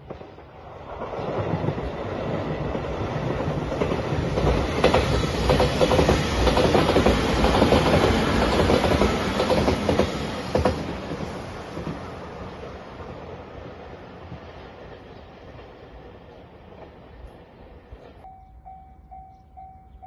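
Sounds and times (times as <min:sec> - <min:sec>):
train wheels clattering: 0:01.0 - 0:12.1.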